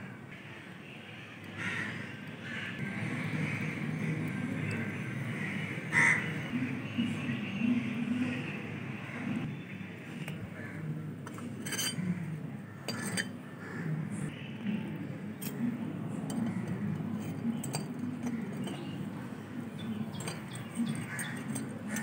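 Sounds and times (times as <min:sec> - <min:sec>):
light metallic clinks: 0:16.3 - 0:19.1, 0:19.8 - 0:22.0.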